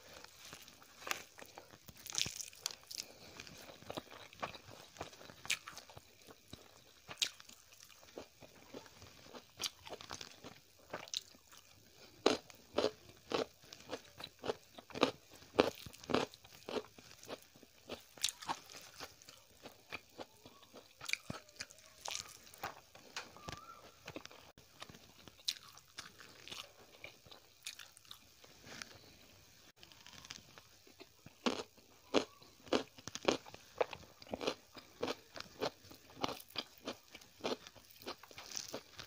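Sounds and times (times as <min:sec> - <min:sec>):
crisp crunching of food: 0:00.0 - 0:39.0.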